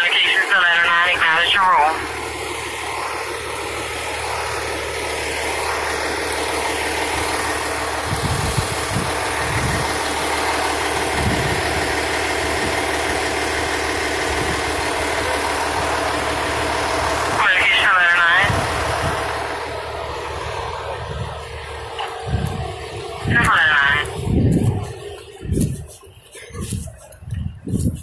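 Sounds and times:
fire engine idling: 0.0 - 28.0
low bumps: 20.0 - 28.0.

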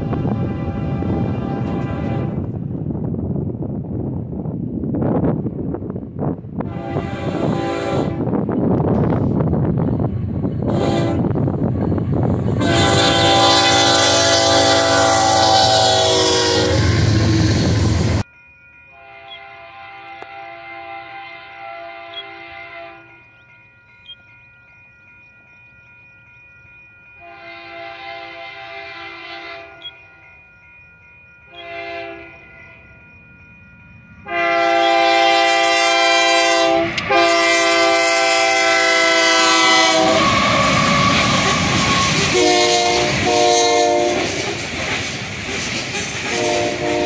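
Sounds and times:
locomotive air horn blasts: 0.0 - 2.5, 6.6 - 8.3, 10.6 - 11.4, 12.6 - 17.7, 19.0 - 23.2, 27.2 - 30.0, 31.6 - 32.4, 34.2 - 44.4, 46.2 - 47.0.

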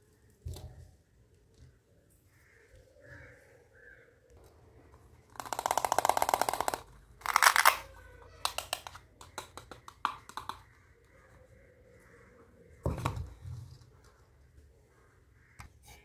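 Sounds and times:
velcro tearing: 7.2 - 7.9.

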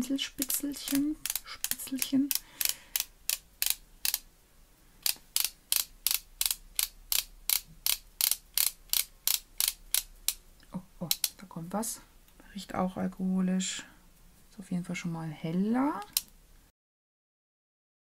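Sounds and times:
pen base ratcheting clicks: 0.4 - 4.3, 5.0 - 10.4.

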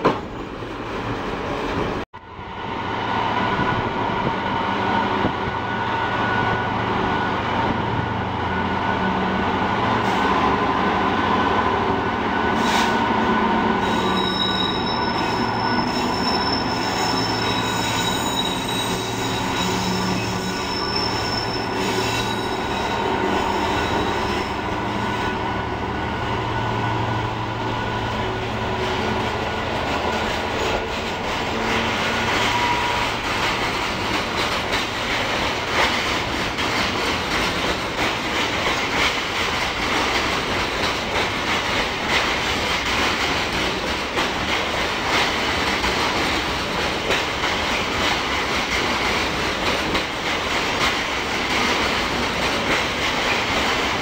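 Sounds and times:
wheels squealing: 13.8 - 25.3.

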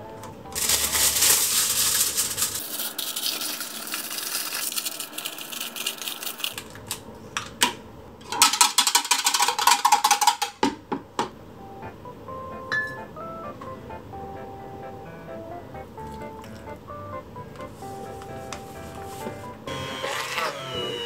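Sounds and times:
light background music: 0.0 - 2.1, 11.6 - 21.0
aluminium foil crinkling: 0.5 - 7.0
scissors cutting foil: 0.5 - 7.0.

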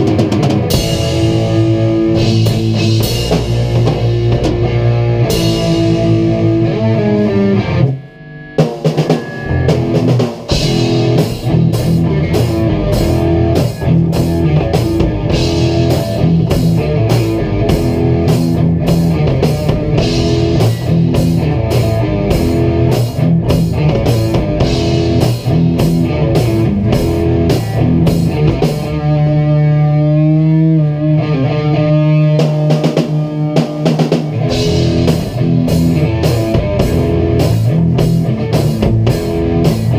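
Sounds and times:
drum kit: 0.0 - 39.9
electric guitars: 0.0 - 39.9.

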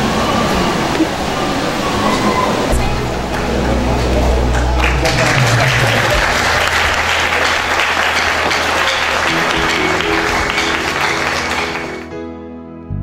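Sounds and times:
instrumental music: 2.8 - 13.0
audience applauding: 3.2 - 12.1.

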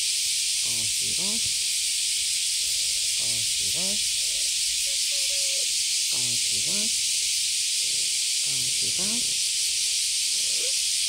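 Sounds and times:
loud high-pitched hiss: 0.0 - 11.0
short pitched calls: 2.5 - 11.0.

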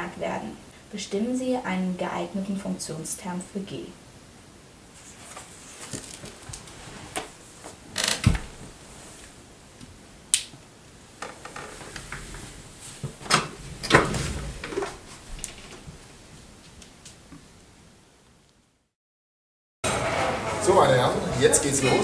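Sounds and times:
rustling on a bed: 4.9 - 9.4, 11.3 - 16.7.

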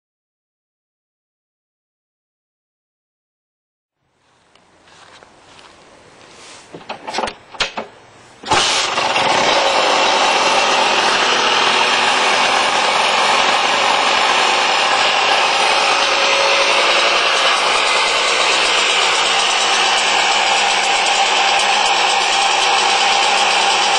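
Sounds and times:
two-stroke engine starting and running: 6.8 - 23.9.

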